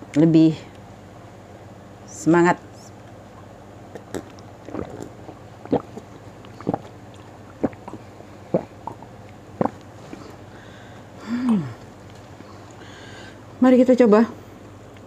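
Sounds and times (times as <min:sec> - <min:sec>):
person gulping water: 0:03.3 - 0:10.4, 0:11.3 - 0:11.9.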